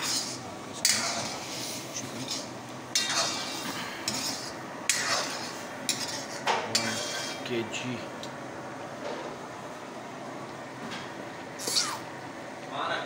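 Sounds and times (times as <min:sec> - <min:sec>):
metal ladle scraping a pan: 0:00.0 - 0:07.4.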